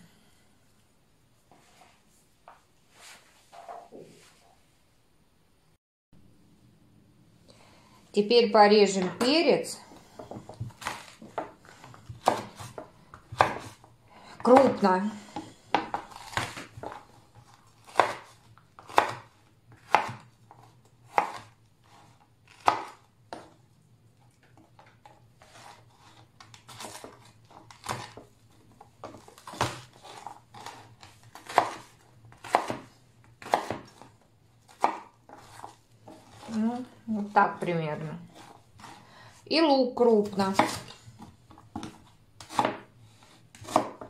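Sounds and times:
knife chopping on wooden board: 10.2 - 23.6, 24.8 - 28.3, 29.0 - 36.6, 40.4 - 44.0.

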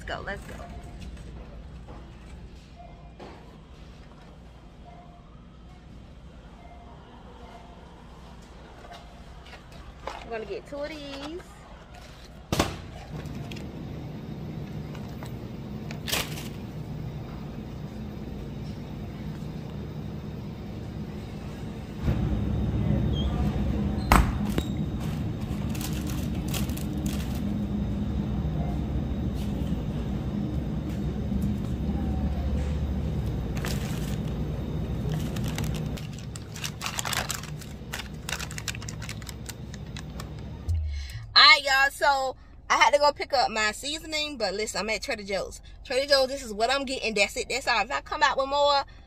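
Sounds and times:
shopping cart rolling on hard floor: 33.5 - 39.7
crinkling and clicking: 35.0 - 40.5.

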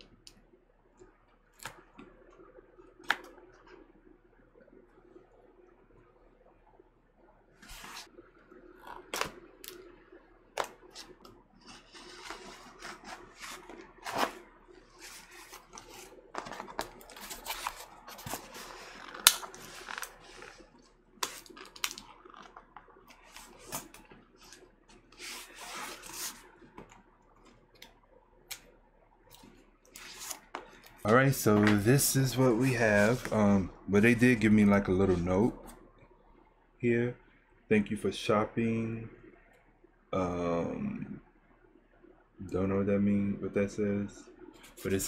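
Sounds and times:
paper and cardboard rustling: 10.9 - 14.4, 15.0 - 22.6, 25.2 - 26.5.

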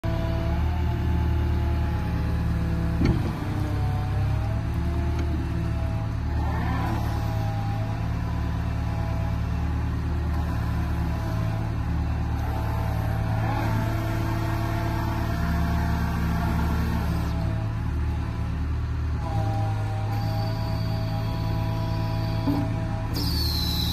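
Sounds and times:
diesel engine running: 0.0 - 23.9
hydraulic whine: 19.2 - 23.9.

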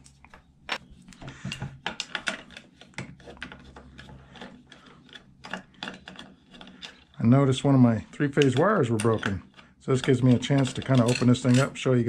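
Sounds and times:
screwdriver metallic clicks and scrapes: 2.0 - 12.0.

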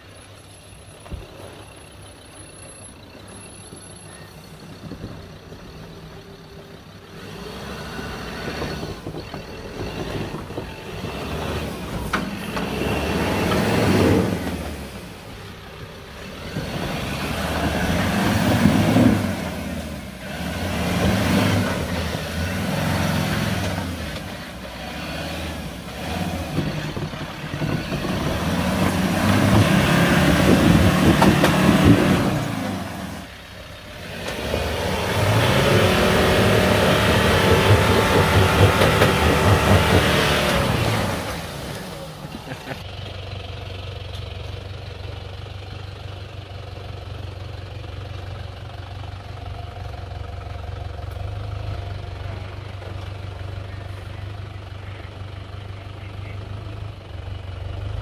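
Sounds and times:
engine revving under load: 7.0 - 42.8.

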